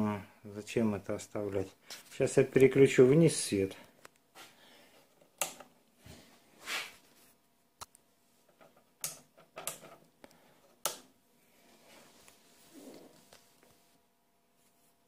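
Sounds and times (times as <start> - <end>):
soft rustle: 11.4 - 15.0.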